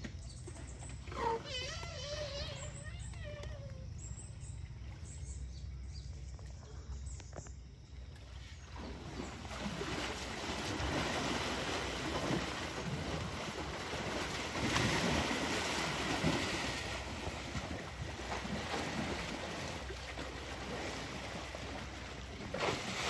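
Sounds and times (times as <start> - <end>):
elephants splashing muddy water: 8.1 - 23.0.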